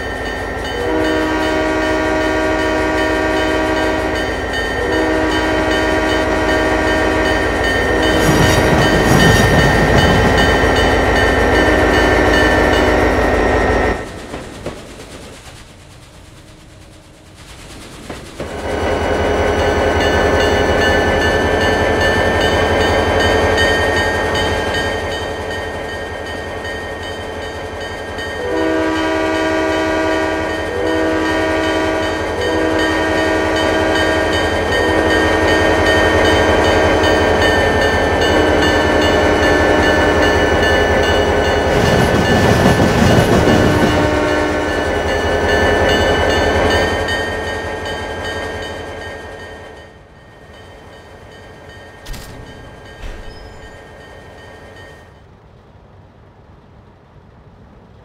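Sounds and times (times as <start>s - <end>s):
train rumble and hum: 0.0s - 58.0s
train horn blasts: 0.7s - 14.0s, 28.3s - 37.2s, 38.1s - 42.7s, 43.4s - 46.9s.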